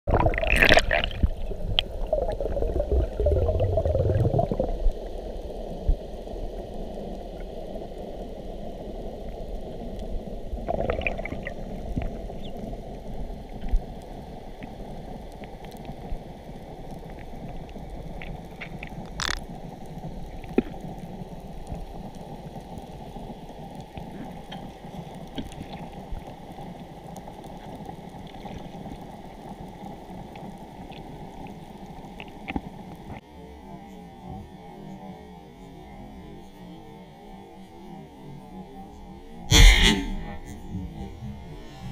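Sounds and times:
muffled underwater rush: 0:00.1 - 0:32.6
underwater splashing and bubbling: 0:00.1 - 0:33.2.

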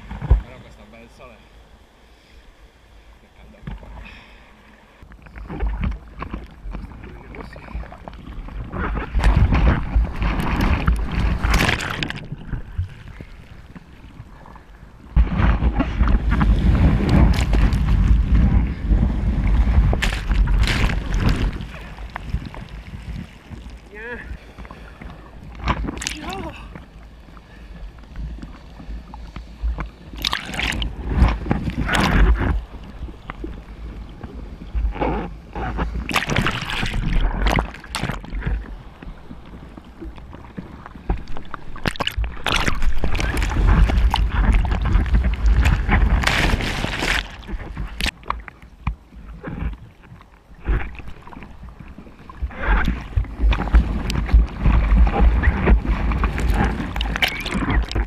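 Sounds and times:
sea water sloshing and splashing: 0:03.6 - 0:58.0
whitewater washing over camera: 0:05.5 - 0:14.5, 0:15.1 - 0:26.8, 0:30.1 - 0:38.8, 0:40.6 - 0:48.4, 0:50.6 - 0:58.0.

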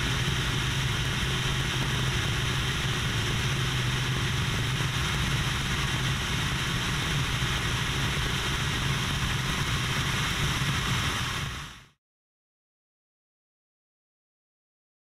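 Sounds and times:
wind rush: 0:00.0 - 0:11.9
propeller plane engine drone: 0:00.0 - 0:12.0.

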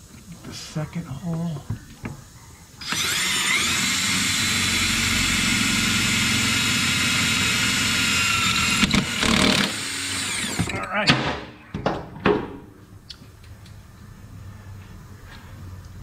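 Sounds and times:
impact gun drilling metal: 0:02.8 - 0:10.8.

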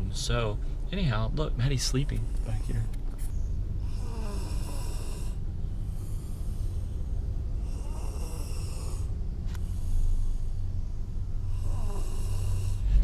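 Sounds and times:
steady low hum: 0:00.0 - 0:13.0
toddler snoring: 0:03.8 - 0:10.4, 0:11.4 - 0:13.0.

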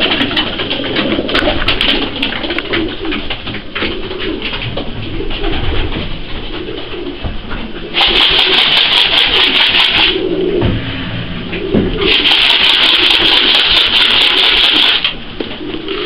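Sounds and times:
pigeons cooing: 0:00.0 - 0:16.0
loud rushing noise: 0:07.9 - 0:15.4.

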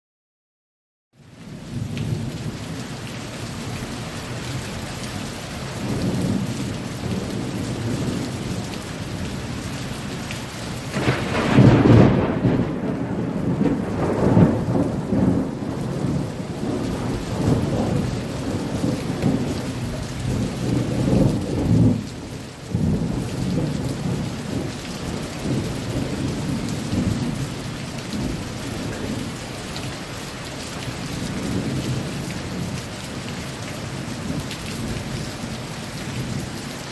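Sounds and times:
steady rain: 0:01.2 - 0:36.9
low rolling thunder: 0:05.6 - 0:09.7, 0:10.9 - 0:30.1, 0:30.8 - 0:32.9, 0:33.8 - 0:36.9
loud thunderclap: 0:05.8 - 0:08.6, 0:10.9 - 0:29.3.

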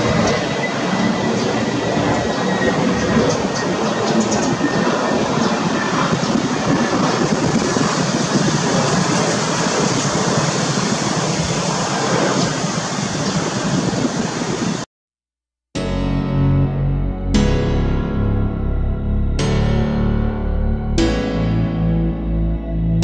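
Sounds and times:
jet engines running: 0:00.0 - 0:14.9.

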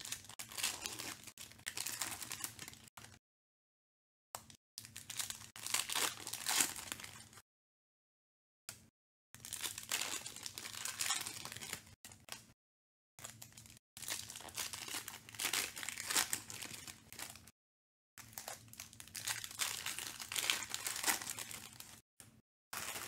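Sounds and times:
foil wrappers crinkling: 0:00.0 - 0:02.9, 0:09.4 - 0:11.9, 0:13.2 - 0:17.5, 0:18.2 - 0:22.0, 0:22.8 - 0:23.0.

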